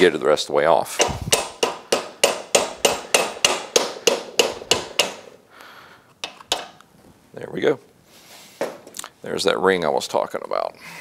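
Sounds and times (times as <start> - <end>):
hammer tapping on metal: 1.0 - 5.4, 6.2 - 6.8.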